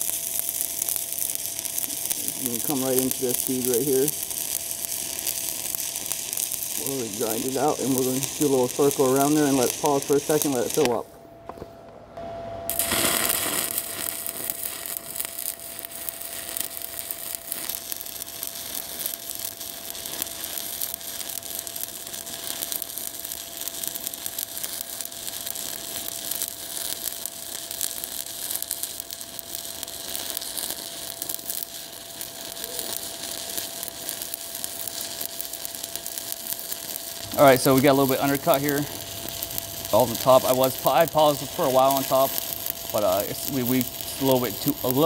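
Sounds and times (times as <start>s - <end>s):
welding arc crackling: 0.0s - 11.1s, 12.7s - 45.0s
faint steady tone: 12.2s - 12.8s.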